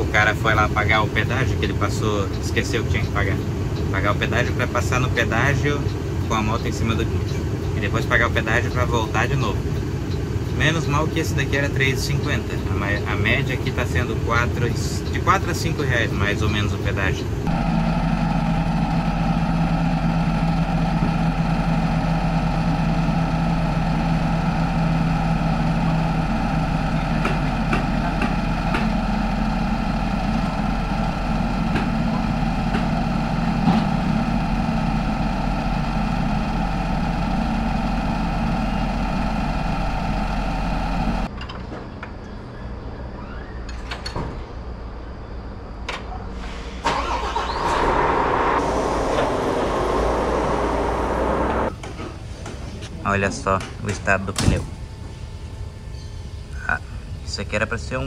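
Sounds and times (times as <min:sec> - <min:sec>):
truck engine running: 0:00.0 - 0:41.3, 0:46.9 - 0:52.4
road noise: 0:00.0 - 0:58.0
knocks and clicks: 0:27.1 - 0:29.1.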